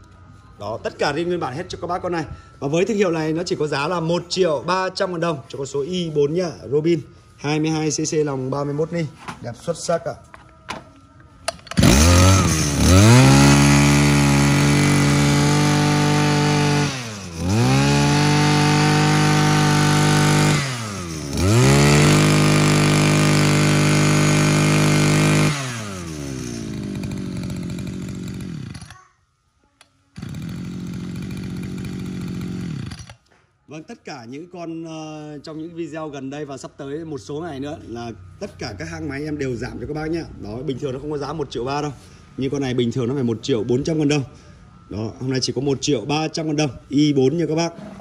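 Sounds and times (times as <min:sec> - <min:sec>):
brush cutter engine revving: 0:11.5 - 0:29.0, 0:30.2 - 0:33.2.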